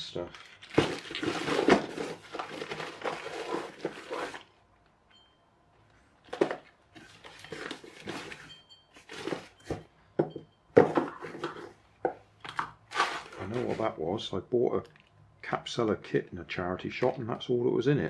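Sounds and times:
plastic bags rustling: 0.0 - 4.6, 6.2 - 9.8, 12.8 - 14.2
plastic pieces clattering: 0.2 - 4.5, 12.5 - 13.9.

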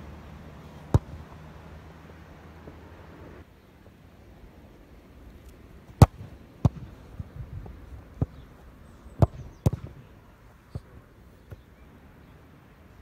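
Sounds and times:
football being struck: 0.8 - 1.3, 6.0 - 7.1, 9.2 - 10.1.

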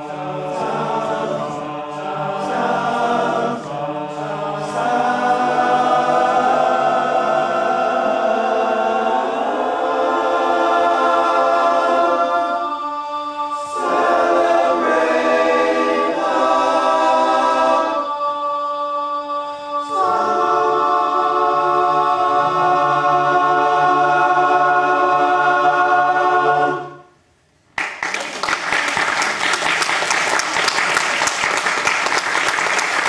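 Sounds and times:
men's chorus singing a cappella: 0.0 - 27.1.

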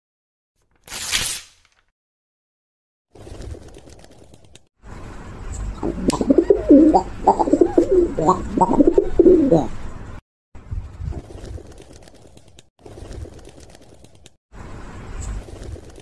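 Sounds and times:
doves cooing: 5.8 - 9.8.

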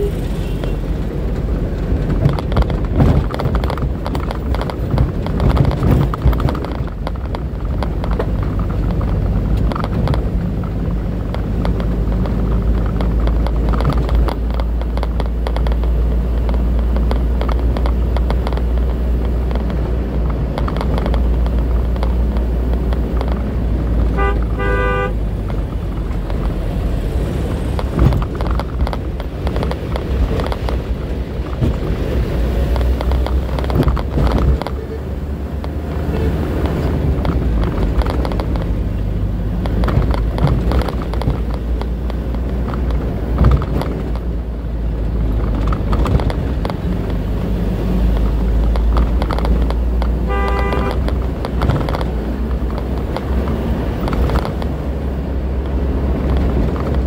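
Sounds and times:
tyre and road noise: 0.0 - 57.0
vehicle horn blast: 24.1 - 25.2, 50.2 - 51.1.

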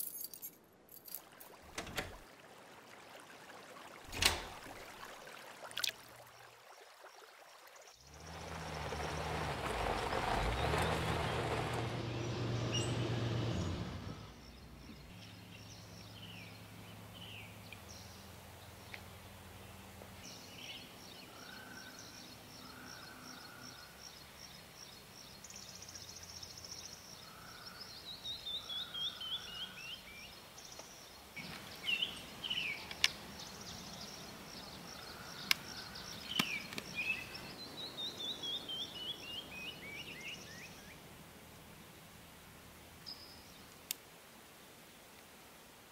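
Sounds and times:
birds singing: 10.3 - 41.1.

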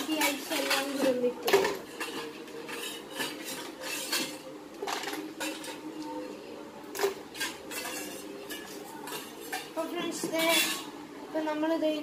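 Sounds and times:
ice and spoon clinking in metal bowl: 0.0 - 5.9, 7.0 - 9.8.

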